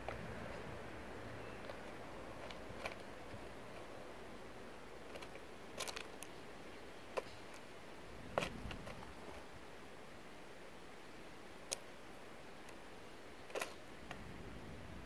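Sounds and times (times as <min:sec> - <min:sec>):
faint steady hiss: 0:00.0 - 0:15.0
bird cracking seeds: 0:01.4 - 0:04.0, 0:05.0 - 0:06.4, 0:13.4 - 0:14.2.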